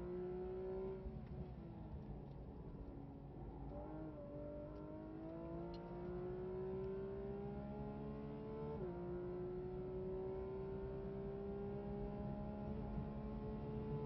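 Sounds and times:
car engine accelerating hard: 3.8 - 14.0.

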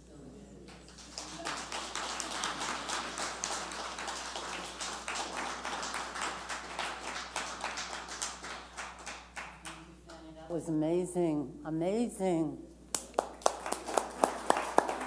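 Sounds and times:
audience applauding: 0.9 - 9.8, 13.0 - 15.0.

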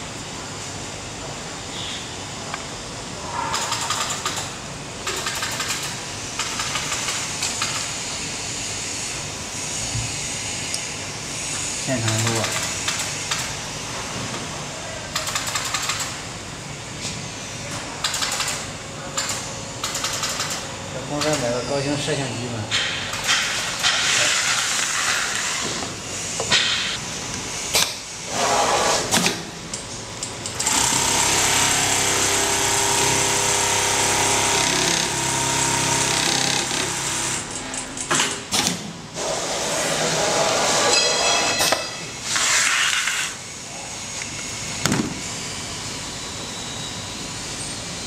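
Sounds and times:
sewing machine stitching: 30.6 - 37.4.

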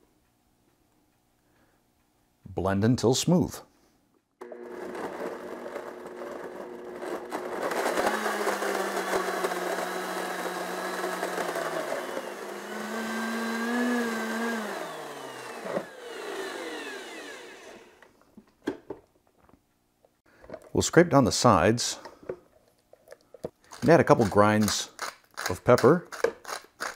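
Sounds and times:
blender motor running: 4.4 - 18.1.

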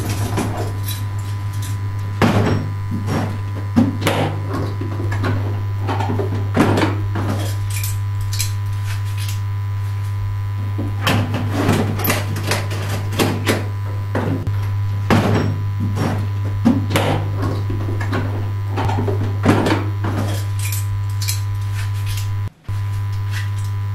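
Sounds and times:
objects knocking and clattering: 0.0 - 8.6, 10.8 - 22.0
steady low hum: 0.0 - 23.9.

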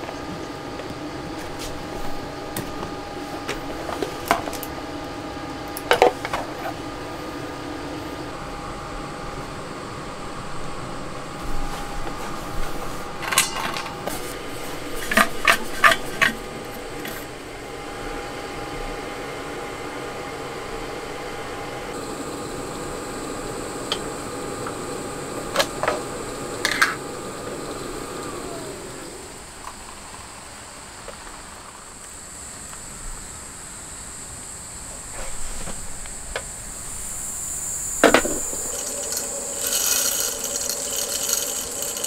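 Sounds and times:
small machine humming: 0.0 - 42.0
high insect chirring: 21.9 - 42.0.

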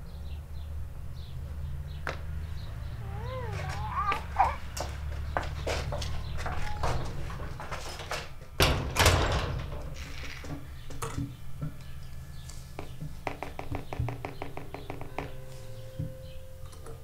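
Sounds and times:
door shutting: 6.1 - 11.3.

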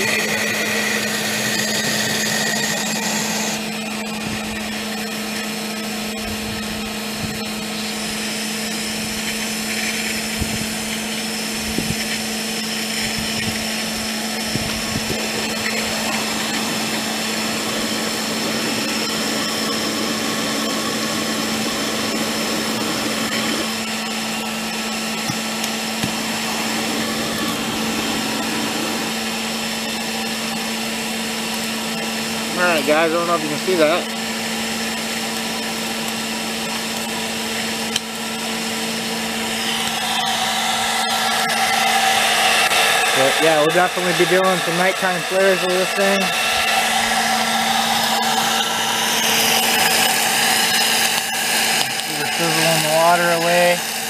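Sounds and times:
electric blower motor hum: 0.0 - 54.0
bright hiss: 39.1 - 54.0.

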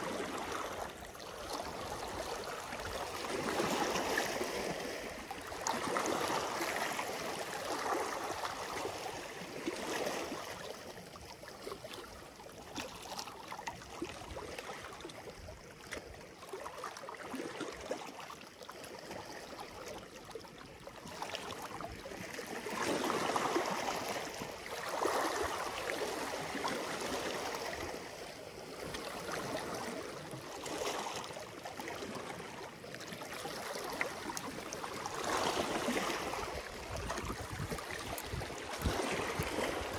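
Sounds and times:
small waves lapping over rocks: 0.0 - 39.9.

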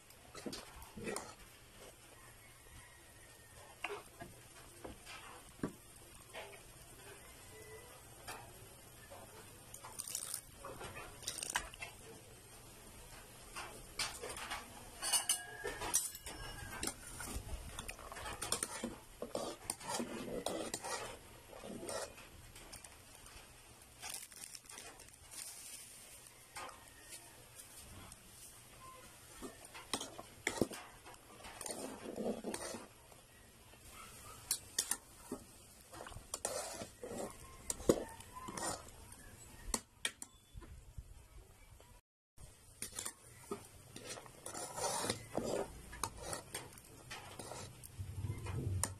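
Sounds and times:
metal spoon stirring soup: 0.0 - 2.4, 3.3 - 40.5, 42.5 - 48.9
metal spatula scraping pot: 0.3 - 2.1, 3.6 - 12.2, 13.4 - 33.0, 34.1 - 40.4, 42.8 - 48.9
spoon clinking against pot: 13.7 - 20.9.

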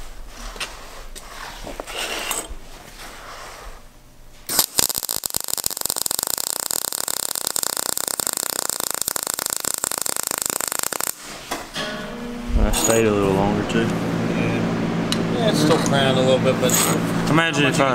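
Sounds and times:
welding arc crackling: 4.5 - 11.7.

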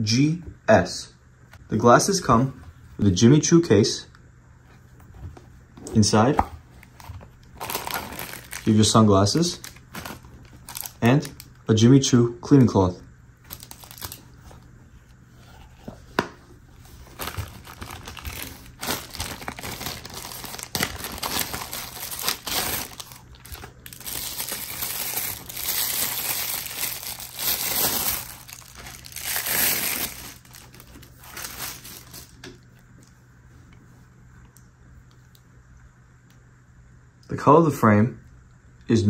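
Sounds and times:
plastic packaging crinkling: 7.4 - 11.6, 13.5 - 14.4, 16.9 - 32.5.

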